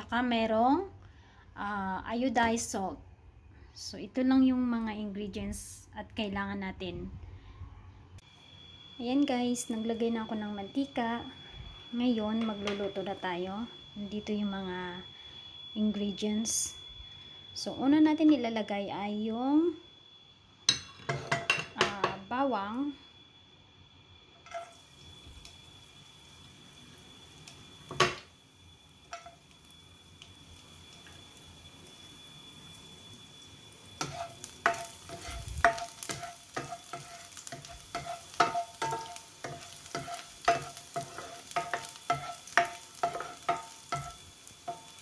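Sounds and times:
garlic sizzling in hot oil: 8.3s - 16.9s, 24.1s - 45.0s.

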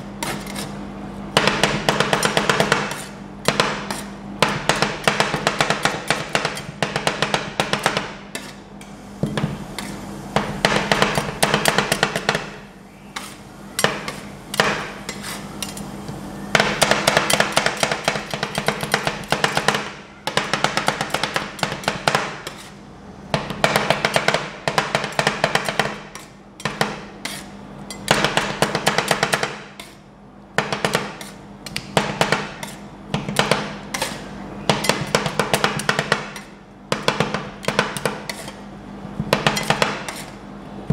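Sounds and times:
metal spatulas chopping and scraping: 0.2s - 12.6s, 13.2s - 15.9s, 16.6s - 22.8s, 23.4s - 30.0s, 30.6s - 38.6s, 39.2s - 40.4s.

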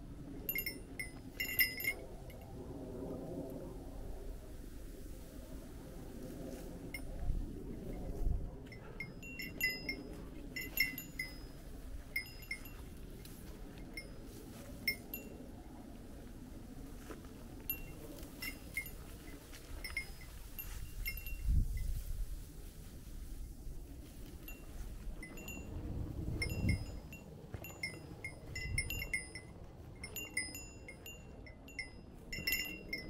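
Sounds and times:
small metal bell tinkling: 0.4s - 2.4s, 8.7s - 13.0s, 13.8s - 15.5s, 17.7s - 22.1s, 24.4s - 33.0s.

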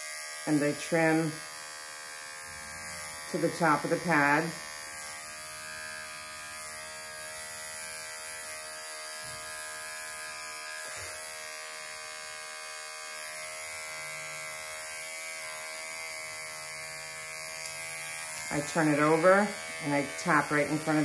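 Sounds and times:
dog clipper buzzing: 0.0s - 21.0s.

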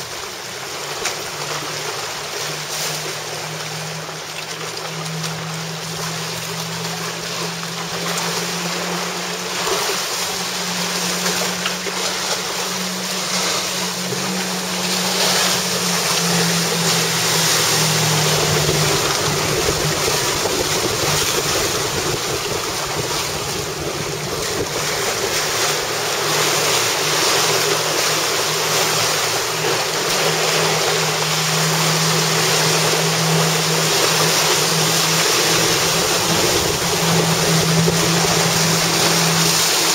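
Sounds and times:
choppy water: 0.0s - 39.9s
outboard engine droning: 0.0s - 39.9s
wind buffeting microphone: 12.9s - 26.7s, 29.8s - 39.9s.

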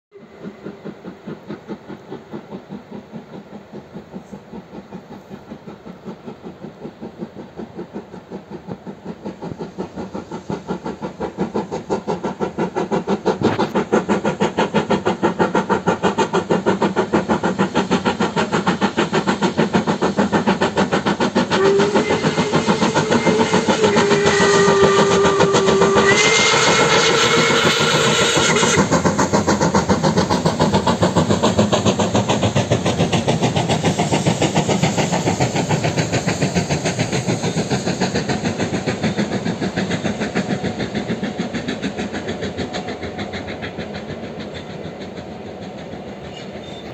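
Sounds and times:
steam locomotive exhaust chuffs: 0.1s - 46.9s
steam whistle blast: 21.5s - 28.9s.

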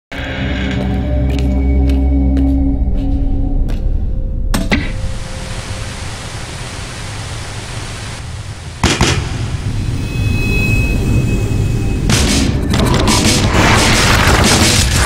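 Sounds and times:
rumbling hiss: 4.9s - 11.9s
sharp hit: 8.8s - 15.0s.

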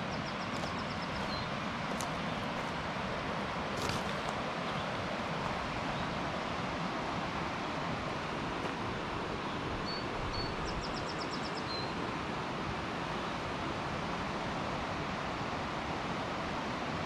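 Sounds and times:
waterfall rushing: 0.0s - 10.3s.

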